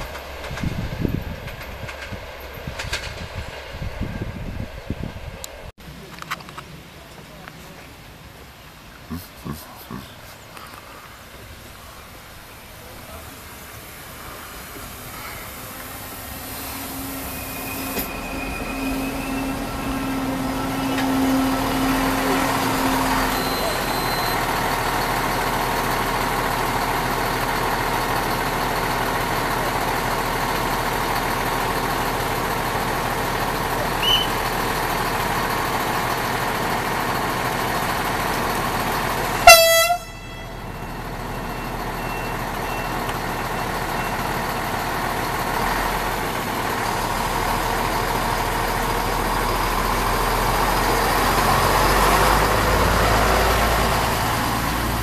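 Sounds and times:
diesel train engine running: 0:00.0 - 0:55.0
train horn blast: 0:39.4 - 0:40.6.

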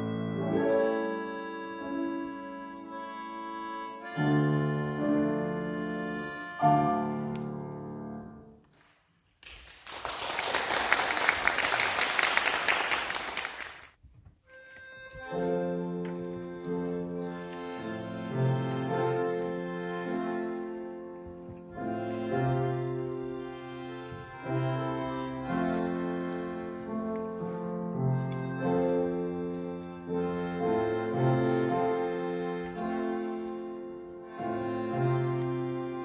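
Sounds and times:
concertina playing chords: 0:00.0 - 0:08.4, 0:14.5 - 0:36.0
audience applause: 0:09.4 - 0:14.0.

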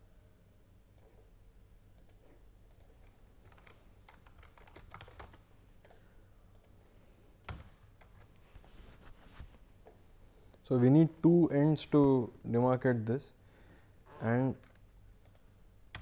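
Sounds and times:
computer keyboard typing: 0:02.0 - 0:05.4, 0:15.2 - 0:16.0.

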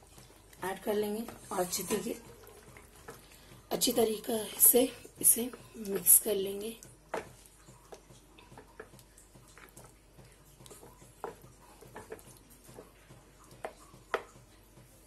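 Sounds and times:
wet squelching of stirred curry: 0:00.0 - 0:15.0
spatula tapping a pan: 0:06.6 - 0:14.9.

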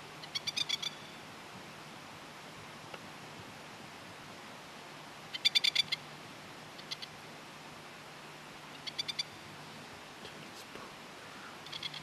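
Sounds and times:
plover harsh rattling calls: 0:08.8 - 0:09.4, 0:11.5 - 0:12.0.

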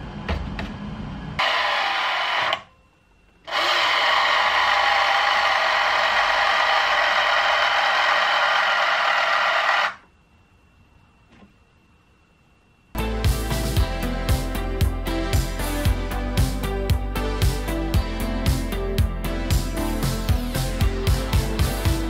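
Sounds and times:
mirror motor whirring: 0:01.4 - 0:02.7, 0:03.4 - 0:10.1.

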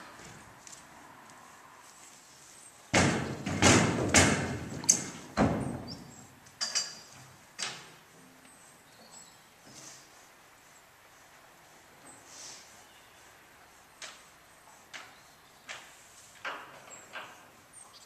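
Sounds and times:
hooves on wooden ramp: 0:02.9 - 0:06.0.

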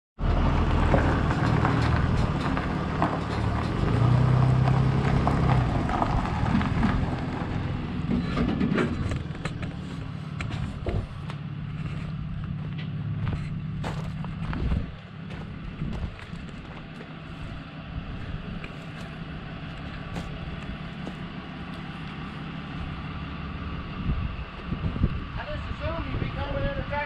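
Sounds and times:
pickup truck engine idling: 0:08.9 - 0:25.3
footsteps crunching on gravel: 0:09.0 - 0:23.0.

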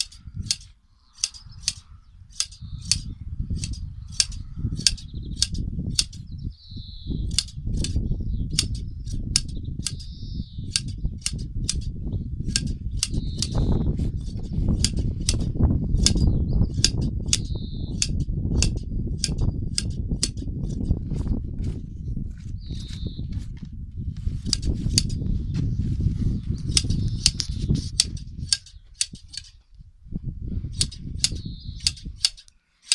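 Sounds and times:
sheep shears snipping: 0:00.0 - 0:06.2, 0:07.3 - 0:21.4, 0:24.3 - 0:25.2, 0:26.4 - 0:29.6, 0:30.8 - 0:32.9
steady low rumble: 0:00.0 - 0:32.3.

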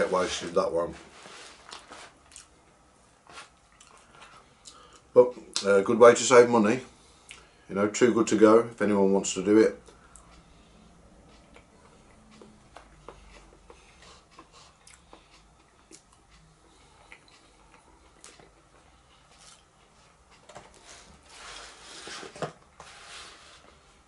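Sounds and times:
close-up chewing: 0:11.3 - 0:20.0.

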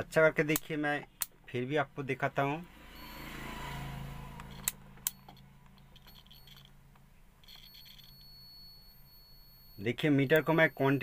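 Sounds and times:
multimeter probe clicks: 0:00.5 - 0:01.4
faint high steady tone: 0:02.9 - 0:03.6, 0:05.0 - 0:11.0.

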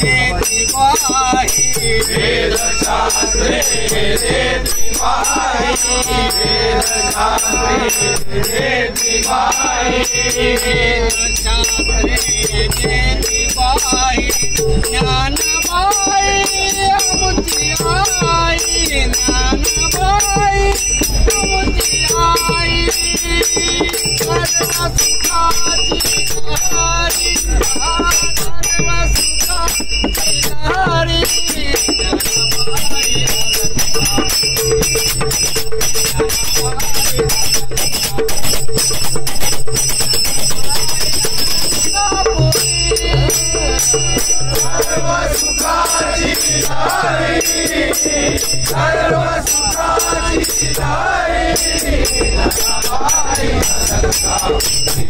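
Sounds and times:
men singing together: 0:00.0 - 0:39.6, 0:40.4 - 0:55.0
hand cymbals clashing: 0:00.0 - 0:55.0.

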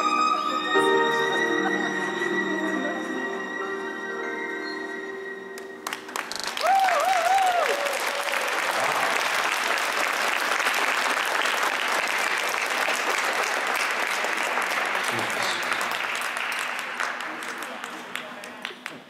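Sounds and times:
audience applauding: 0:05.6 - 0:19.0
high wavering cheer: 0:06.3 - 0:09.2.

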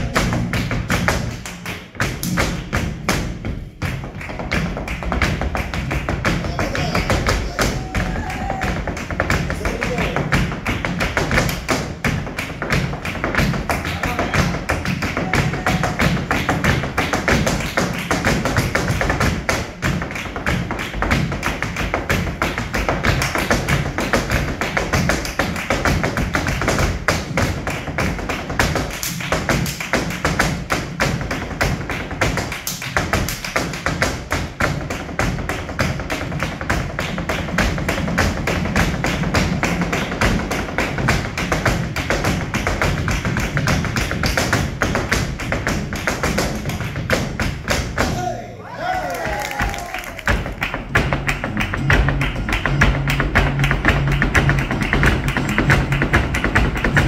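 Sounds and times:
hand-clapping: 0:00.0 - 0:03.2, 0:03.8 - 0:48.2, 0:49.0 - 0:57.0
heeled shoes stamping on stage: 0:00.0 - 0:48.3, 0:49.0 - 0:57.0
flamenco guitar: 0:50.3 - 0:57.0.

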